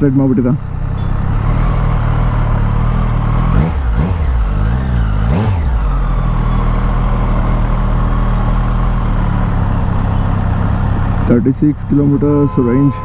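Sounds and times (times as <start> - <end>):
motorcycle engine idling: 5.9 - 13.0.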